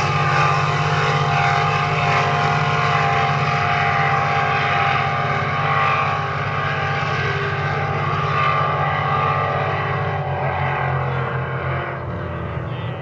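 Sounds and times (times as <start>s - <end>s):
motorboat engine droning: 0.0s - 13.0s.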